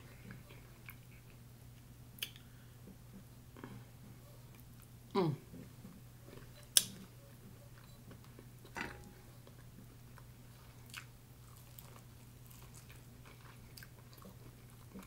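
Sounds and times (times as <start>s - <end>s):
chewing mouth sounds: 10.8s - 15.0s.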